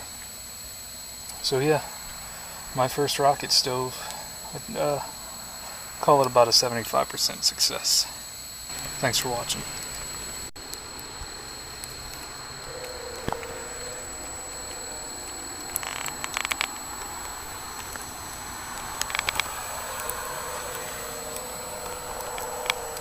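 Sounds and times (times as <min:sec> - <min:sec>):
wood fire hissing: 0:00.0 - 0:23.0
crackling pops: 0:08.7 - 0:23.0.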